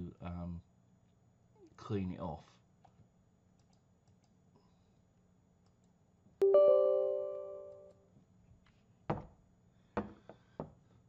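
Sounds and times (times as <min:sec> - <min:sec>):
click: 0:03.6 - 0:04.4, 0:05.6 - 0:06.0
electronic chime chord: 0:06.4 - 0:08.0.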